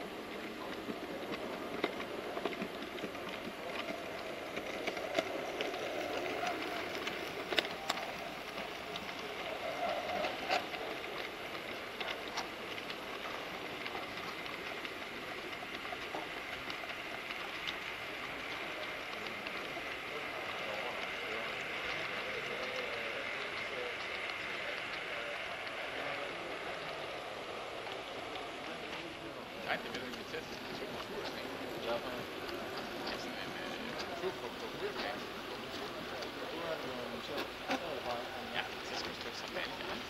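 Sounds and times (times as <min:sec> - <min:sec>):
clicks from wheels and couplings: 0:00.0 - 0:27.2, 0:27.8 - 0:40.0
model train rolling on track: 0:00.0 - 0:40.0.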